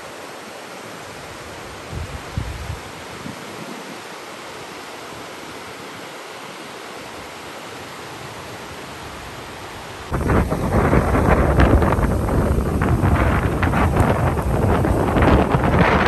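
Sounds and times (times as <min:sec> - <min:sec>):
river rushing over rapids: 0:00.0 - 0:16.0
wind buffeting microphone: 0:01.9 - 0:03.8, 0:10.1 - 0:16.0.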